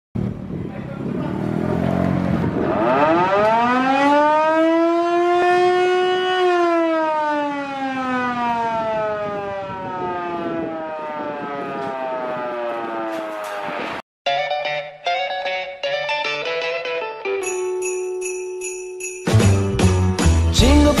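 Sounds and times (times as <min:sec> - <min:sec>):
siren wailing: 0:02.5 - 0:14.0.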